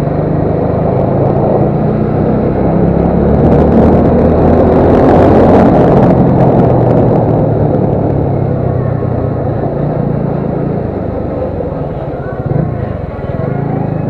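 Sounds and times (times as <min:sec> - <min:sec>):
motorcycle engine running: 0:00.0 - 0:14.0
road and wind noise: 0:00.0 - 0:14.0.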